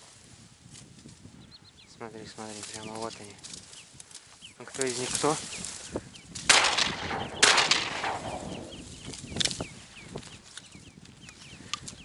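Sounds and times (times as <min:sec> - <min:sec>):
shotgun shots: 0:06.5 - 0:08.9
short high bird calls: 0:06.9 - 0:10.1.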